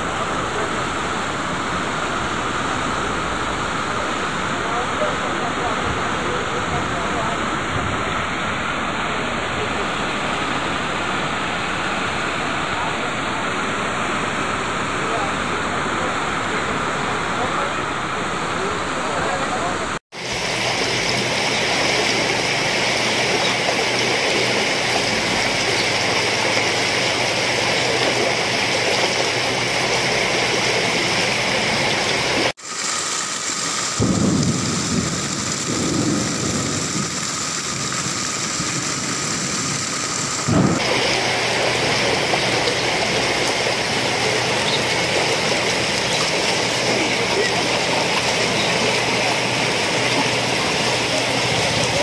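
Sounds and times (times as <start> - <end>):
floodwater rushing: 0.0 - 52.0
deep rumble: 38.2 - 40.9.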